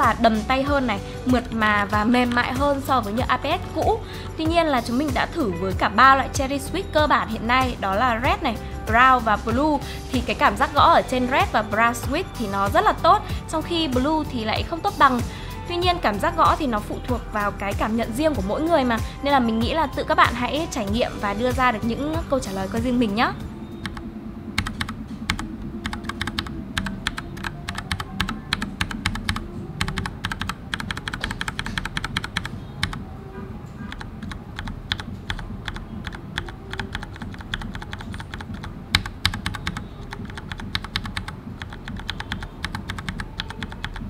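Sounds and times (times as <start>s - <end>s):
mechanical keyboard typing: 24.6s - 33.0s, 33.8s - 44.0s.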